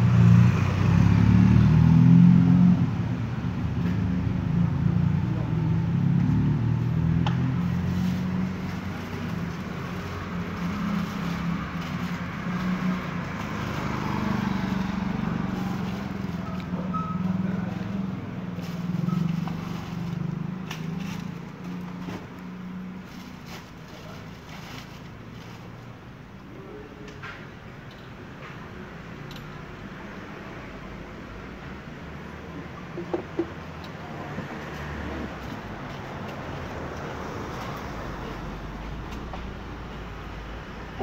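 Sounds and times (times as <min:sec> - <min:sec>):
plastic bag rustling: 0:07.7 - 0:16.6, 0:18.6 - 0:22.0, 0:23.0 - 0:25.8.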